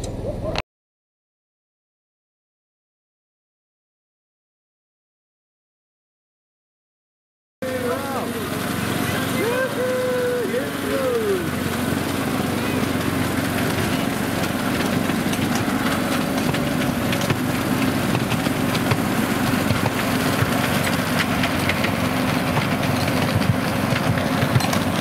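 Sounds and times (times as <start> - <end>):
miniature locomotive engine running: 7.6 - 25.0
wheels clicking on track: 7.6 - 25.0.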